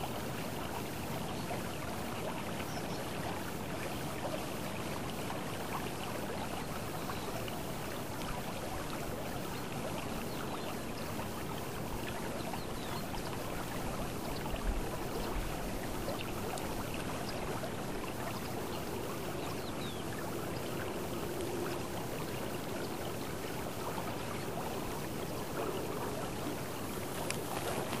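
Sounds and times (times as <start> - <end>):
river water flowing over pebbles: 0.0 - 28.0.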